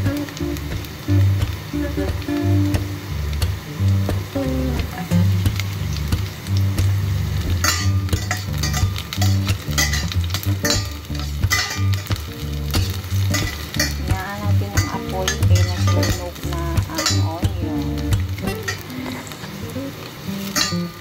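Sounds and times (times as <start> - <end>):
background music with bass line: 0.0 - 18.9
garlic and onion sizzling in oil: 0.0 - 21.0
metal spatula scraping a pan: 7.2 - 19.5, 20.4 - 21.0.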